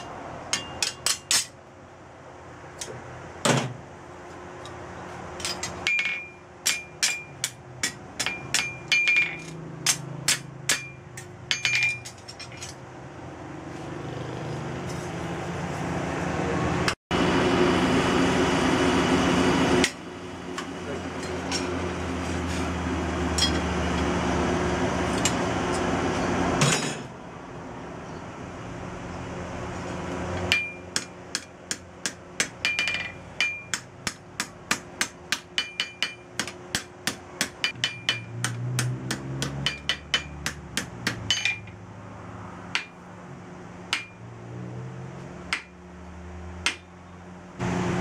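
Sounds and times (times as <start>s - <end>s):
hammer striking on anvil: 0.0s - 1.6s, 5.4s - 12.8s, 23.3s - 23.7s, 30.5s - 41.8s, 42.7s - 43.0s, 43.9s - 44.2s, 45.5s - 45.8s, 46.6s - 46.9s
forge air blower running: 15.6s - 25.0s, 47.6s - 48.0s.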